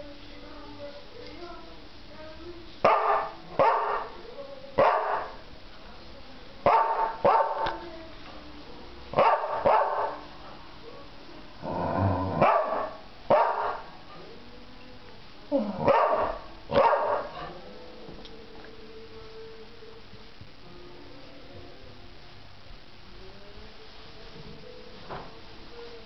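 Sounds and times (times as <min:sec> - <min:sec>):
dog barking: 0:02.8 - 0:04.2, 0:04.8 - 0:05.4, 0:06.7 - 0:07.8, 0:09.2 - 0:10.3, 0:12.4 - 0:13.9, 0:15.8 - 0:17.6.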